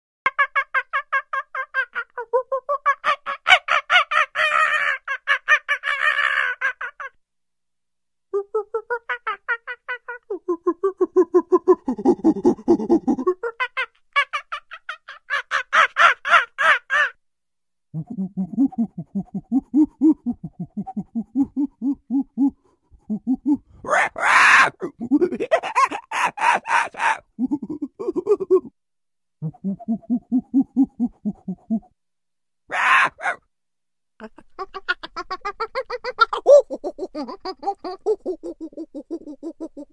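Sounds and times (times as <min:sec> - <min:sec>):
monkey harsh calls: 0:02.9 - 0:07.1, 0:13.8 - 0:17.2, 0:23.8 - 0:27.3, 0:32.7 - 0:33.4
monkey hooting calls: 0:23.2 - 0:28.3, 0:32.7 - 0:33.4.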